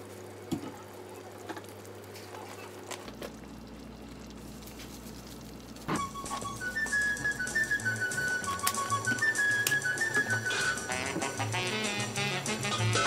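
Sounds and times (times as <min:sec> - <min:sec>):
music: 0:05.9 - 0:13.0.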